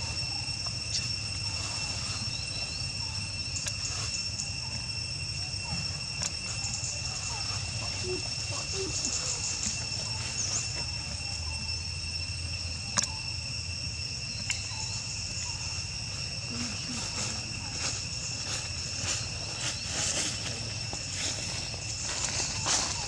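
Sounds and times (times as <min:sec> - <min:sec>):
insects buzzing: 0:00.0 - 0:23.0.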